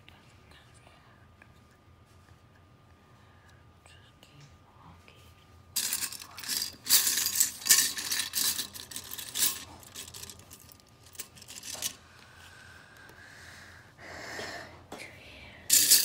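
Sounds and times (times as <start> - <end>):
plastic bricks rattling in a bowl: 5.8 - 12.0, 15.7 - 16.0.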